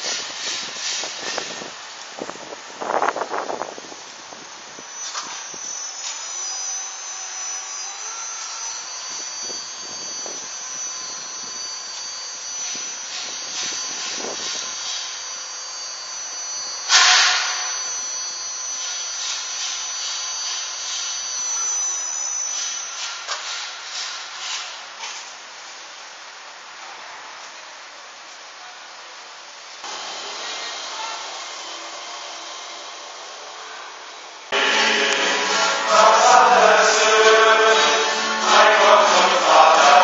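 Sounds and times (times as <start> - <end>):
high-pitched machine whine: 0.0 - 26.8, 29.5 - 40.0
loud rush of noise: 34.5 - 40.0.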